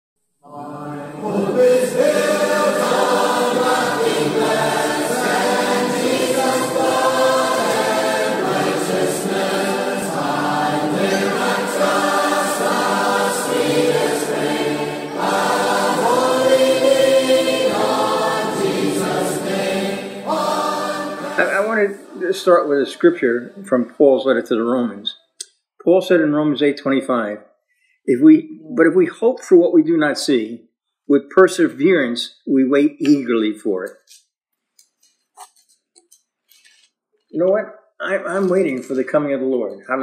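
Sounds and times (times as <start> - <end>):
choir singing gospel chords: 0.4 - 25.1.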